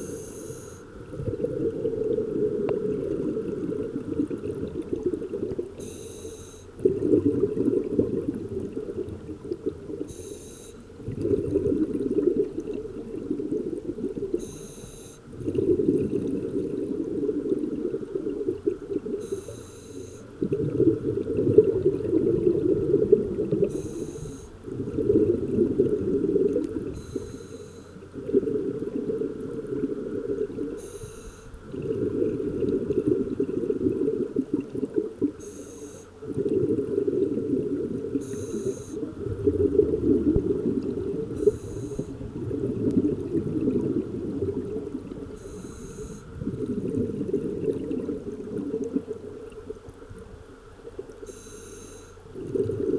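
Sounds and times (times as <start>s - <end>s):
regulator inhale hiss: 0.0s - 0.9s, 5.8s - 6.7s, 10.1s - 10.9s, 19.2s - 20.3s, 23.7s - 24.6s, 27.0s - 28.0s, 30.8s - 31.6s, 35.4s - 36.1s, 38.2s - 39.0s, 41.4s - 42.2s, 45.4s - 46.3s, 51.2s - 52.2s
exhaled air bubbling: 0.0s - 52.9s.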